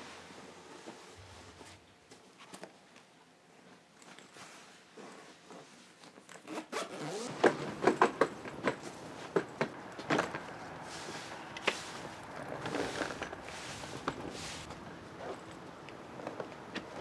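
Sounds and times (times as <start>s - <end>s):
suitcase zipper: 6.3s - 17.0s
footsteps: 7.3s - 17.0s
suitcase bumping down wooden steps: 7.3s - 17.0s.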